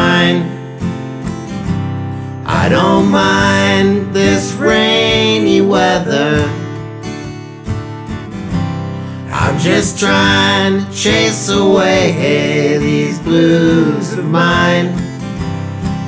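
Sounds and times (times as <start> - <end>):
blues acoustic guitar: 0.0 - 16.0.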